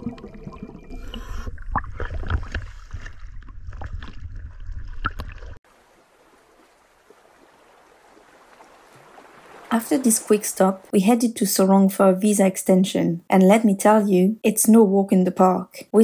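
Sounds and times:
water bubbling and sloshing: 0.0s - 11.0s
sharp splashes: 1.4s - 10.9s.

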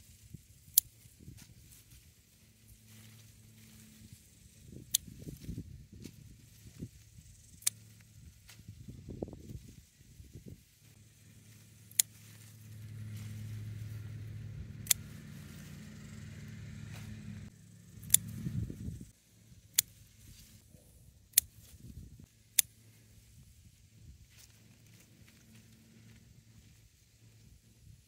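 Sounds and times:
leaves rustling: 0.0s - 27.5s
garden scissors snipping stems: 0.6s - 8.7s, 11.2s - 18.7s, 19.6s - 20.5s, 21.3s - 23.0s
low engine hum: 1.0s - 21.1s, 23.7s - 28.0s.

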